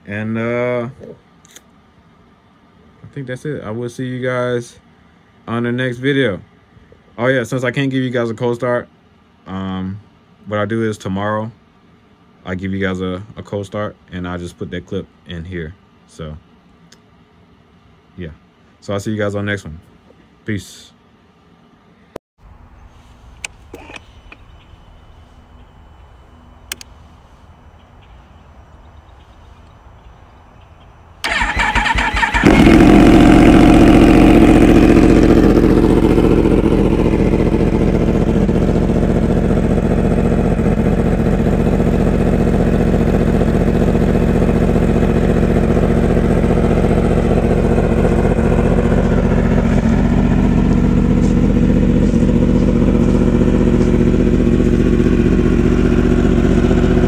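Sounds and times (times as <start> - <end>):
motorcycle engine starting and idling: 23.2 - 25.6, 26.3 - 27.2, 31.2 - 57.0
faint click: 26.7 - 27.0.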